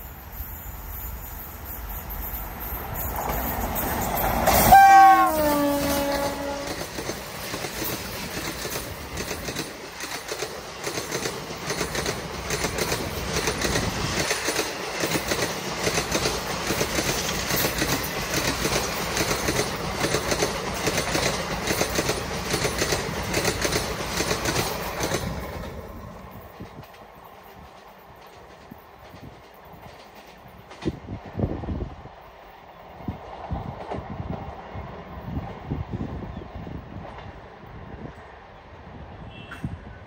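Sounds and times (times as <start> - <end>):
train rushing past: 0.0 - 40.0
wheels clacking over rail joints: 2.1 - 31.5.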